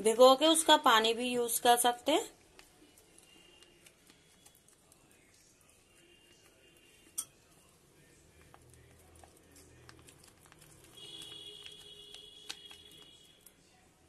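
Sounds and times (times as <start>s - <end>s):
plastic sachet handling: 8.6s - 13.3s.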